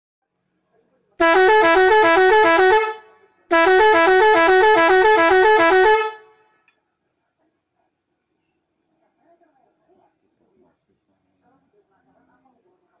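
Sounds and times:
two-tone horn blasts: 0:01.2 - 0:06.4.

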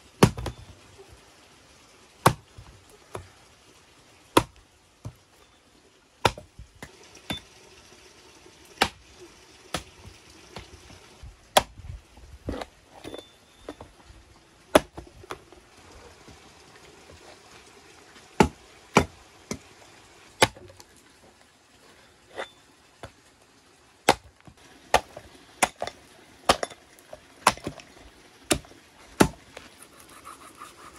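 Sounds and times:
hatchet chopping into wood block: 0:04.4 - 0:04.6, 0:06.2 - 0:06.5, 0:08.8 - 0:09.0, 0:11.5 - 0:11.8, 0:14.7 - 0:15.0, 0:18.4 - 0:19.6, 0:27.4 - 0:27.8, 0:28.5 - 0:29.4.

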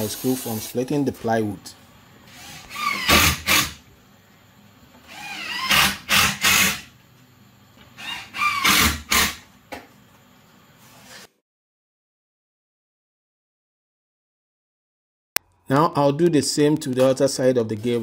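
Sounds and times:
cordless drill boring into wood: 0:08.0 - 0:09.3.

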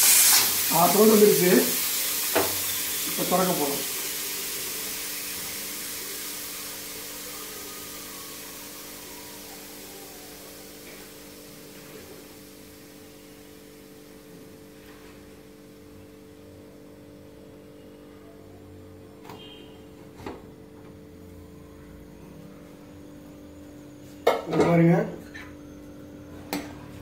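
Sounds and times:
pressure cooker steam hissing: 0:00.0 - 0:14.7.

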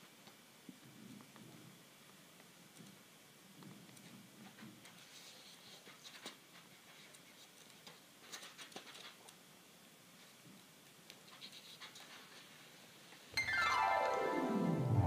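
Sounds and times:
book pages rustling and flicking: 0:04.0 - 0:09.3, 0:11.1 - 0:12.7.

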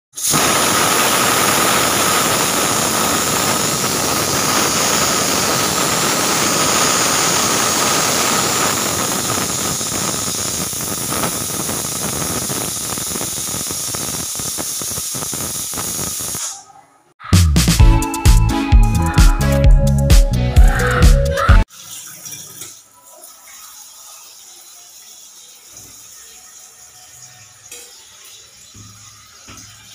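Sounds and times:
pressure cooker whistle hissing: 0:00.2 - 0:16.5.

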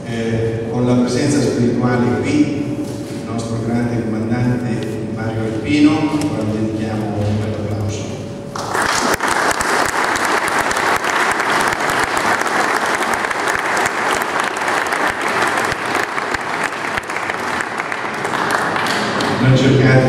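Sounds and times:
audience applause: 0:08.6 - 0:19.6.

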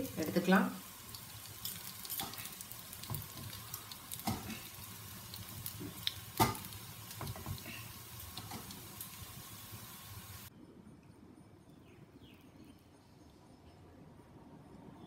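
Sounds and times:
ghee sizzling in a pan: 0:00.0 - 0:10.5.

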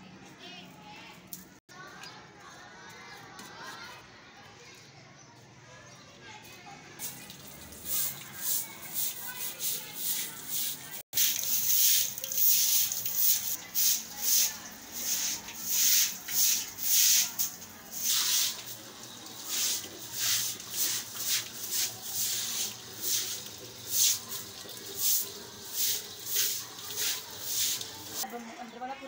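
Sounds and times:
broom scrubbing wet concrete floor: 0:07.0 - 0:28.2.

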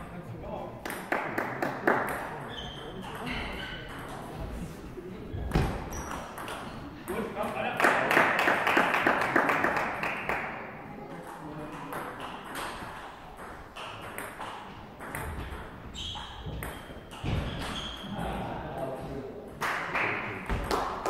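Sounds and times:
table tennis balls bouncing: 0:00.8 - 0:04.5, 0:05.4 - 0:07.2, 0:11.2 - 0:18.4, 0:19.5 - 0:21.0.

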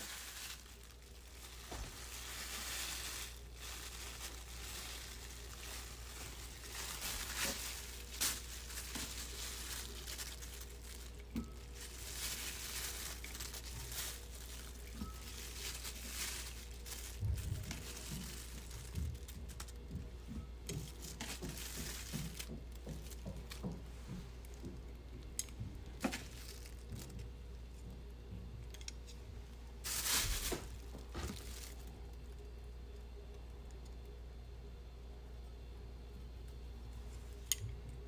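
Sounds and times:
plastic bag crinkling: 0:00.0 - 0:20.0, 0:20.6 - 0:24.6, 0:25.2 - 0:27.4, 0:29.8 - 0:32.5.

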